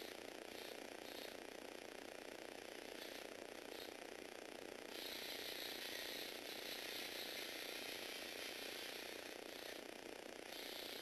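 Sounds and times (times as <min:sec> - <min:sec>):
small electric motor whirring: 0:00.0 - 0:11.0
plastic gears turning: 0:04.9 - 0:09.9.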